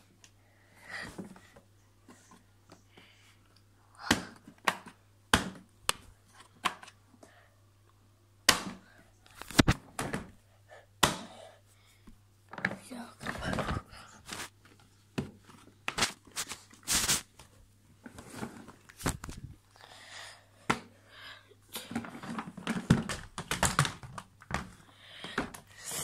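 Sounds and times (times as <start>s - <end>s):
plastic clicks and knocks: 21.9s - 25.6s.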